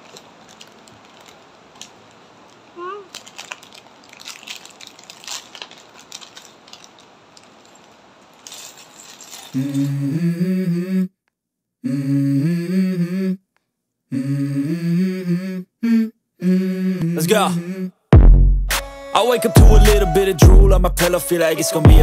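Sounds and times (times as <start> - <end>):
plastic bag crinkling: 0.0 - 9.8
song with held vocal notes: 9.6 - 11.2, 11.8 - 13.4, 14.1 - 18.0, 18.7 - 22.0.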